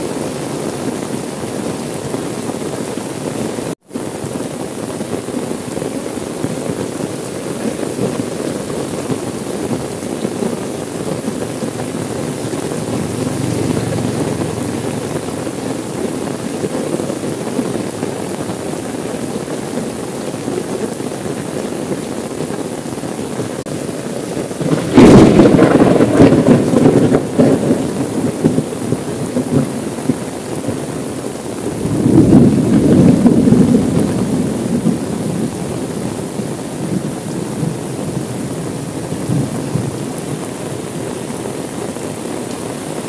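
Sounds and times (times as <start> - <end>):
heavy rain on car windows: 0.0 - 43.0
thunder clap rumbling: 7.7 - 18.5, 23.9 - 40.2.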